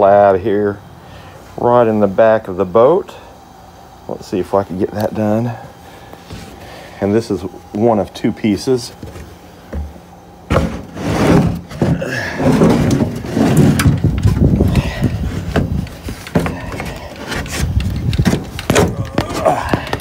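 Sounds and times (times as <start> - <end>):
wood scraping on metal hull: 10.5 - 20.0.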